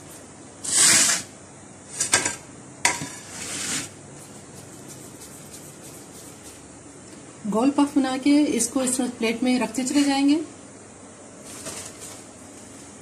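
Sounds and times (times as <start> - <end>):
hands working floured dough: 3.2 - 6.7.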